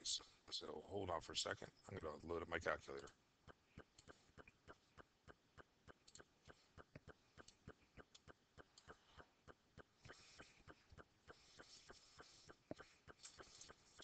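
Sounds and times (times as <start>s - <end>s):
faint clicks: 3.0s - 14.0s.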